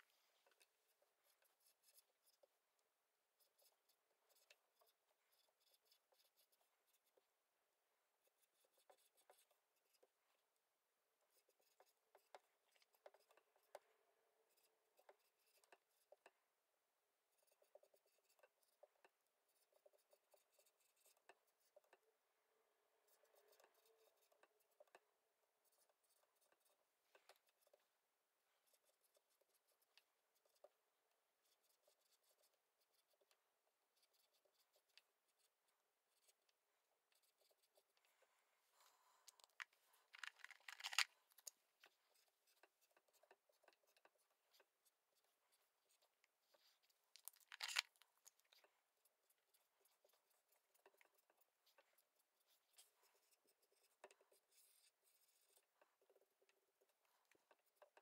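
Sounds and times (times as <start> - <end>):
marker writing on whiteboard: 3.4 - 7.3, 8.2 - 10.2, 11.3 - 13.9, 14.5 - 16.3, 17.3 - 22.2, 23.1 - 25.0, 25.6 - 27.8, 28.6 - 30.8, 31.4 - 38.0, 39.6 - 47.0, 47.6 - 58.0.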